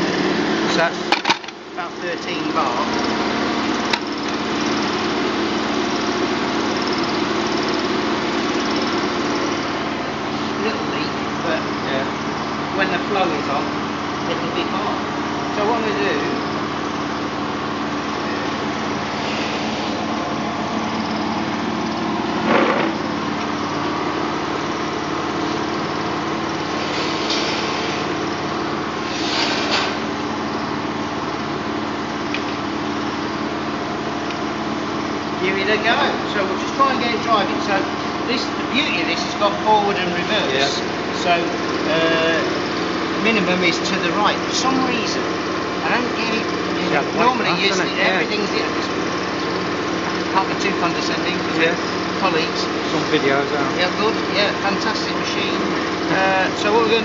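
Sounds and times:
air compressor drone: 0:00.0 - 0:57.0
steady low hum: 0:00.0 - 0:57.0
compressed air hissing: 0:19.0 - 0:21.4, 0:26.7 - 0:30.1
short bursts of air hiss: 0:26.8 - 0:28.1, 0:29.0 - 0:30.0.

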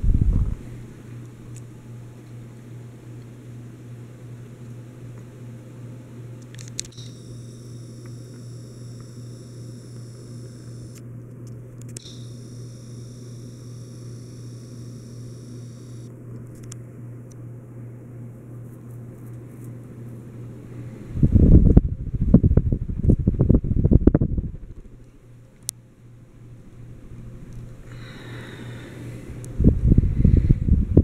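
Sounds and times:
fan blades whooshing: 0:00.0 - 0:02.2, 0:19.5 - 0:31.0
ceiling fan motor humming: 0:00.0 - 0:31.0
faint high whine: 0:06.6 - 0:16.8, 0:20.6 - 0:30.8.

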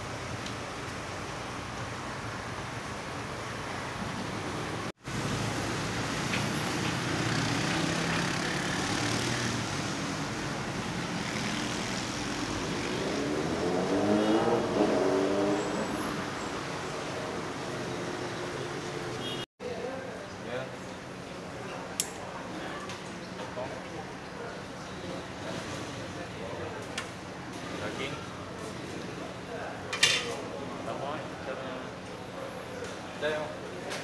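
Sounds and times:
cars passing on busy street: 0:00.0 - 0:19.5, 0:20.4 - 0:34.0
loud vehicle engine passing: 0:04.4 - 0:19.1.

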